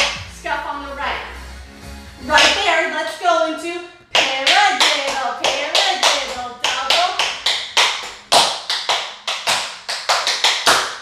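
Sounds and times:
tap shoes on hard floor: 2.3 - 2.7, 4.1 - 11.0.

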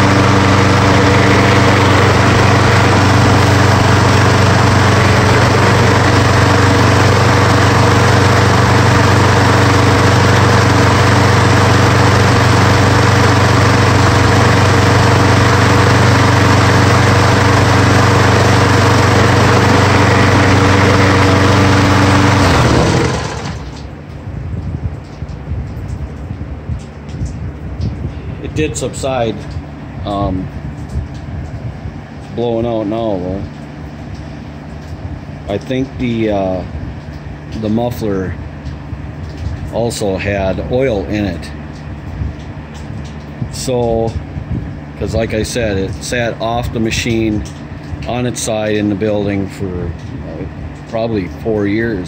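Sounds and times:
engine spinning down: 0.0 - 24.2
lawn mower engine running: 0.0 - 24.2.

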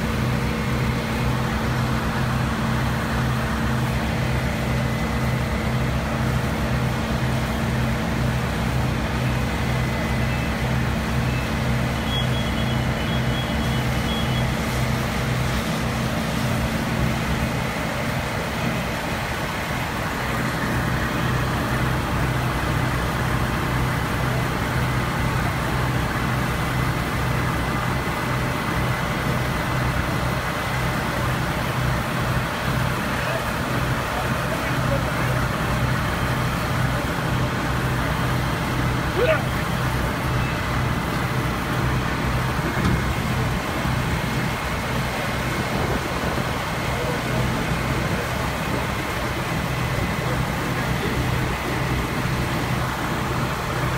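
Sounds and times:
diesel engines droning: 0.0 - 53.9.

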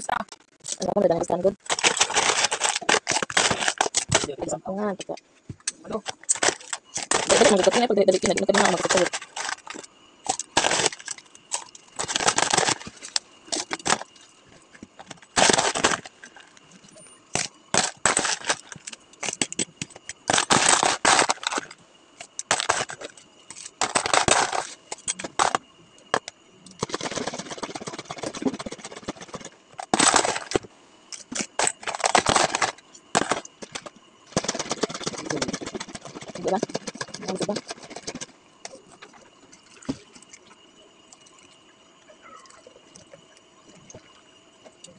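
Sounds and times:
ice and plastic cups clattering: 1.6 - 4.4, 6.0 - 14.2, 14.9 - 16.5, 17.4 - 21.7, 22.4 - 40.1.

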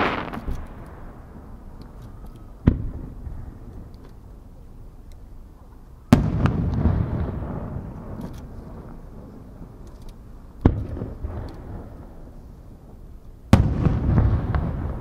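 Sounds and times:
firework bangs: 0.0 - 1.6, 2.6 - 3.9, 6.1 - 9.4, 10.6 - 12.4, 13.5 - 15.0.

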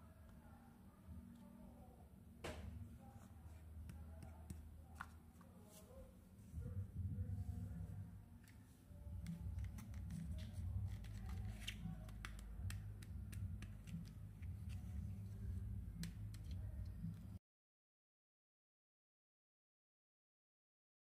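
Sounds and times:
low handling rumble: 6.6 - 8.2.

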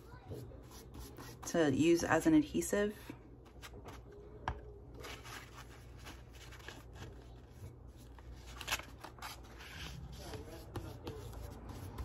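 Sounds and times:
brush spreading medium on paper: 0.0 - 1.5, 9.4 - 12.0
paper sheet crackling: 5.0 - 10.2
stiff paper rustling: 5.0 - 11.9.

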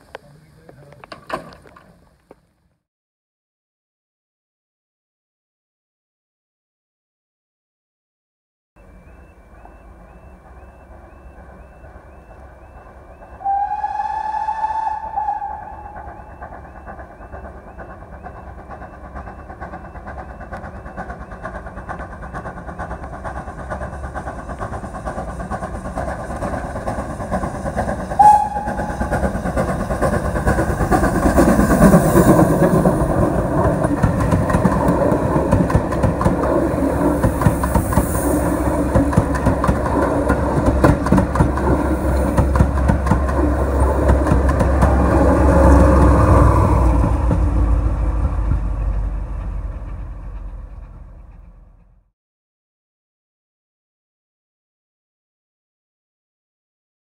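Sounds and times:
train wheels clattering on rail joints: 0.0 - 2.4, 15.1 - 51.9
steam locomotive exhaust: 8.8 - 52.1
steam whistle toot: 10.1 - 17.4, 28.2 - 29.2.

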